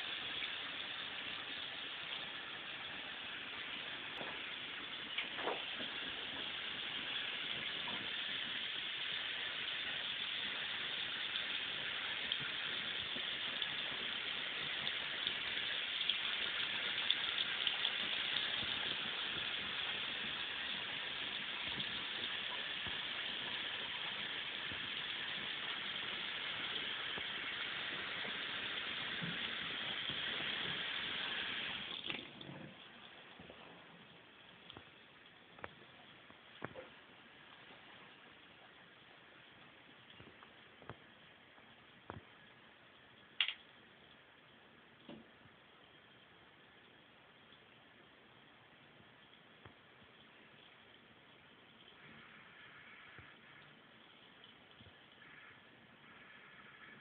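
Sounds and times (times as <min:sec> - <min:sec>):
faucet water splashing into basin: 0:00.0 - 0:33.2.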